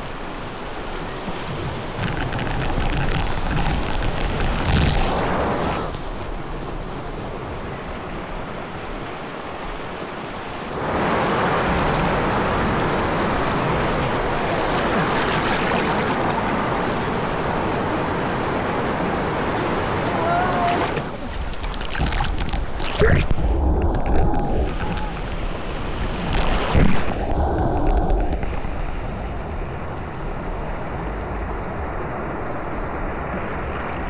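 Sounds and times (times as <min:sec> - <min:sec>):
whitewater rushing and splashing: 0:02.4 - 0:06.0, 0:10.7 - 0:24.0.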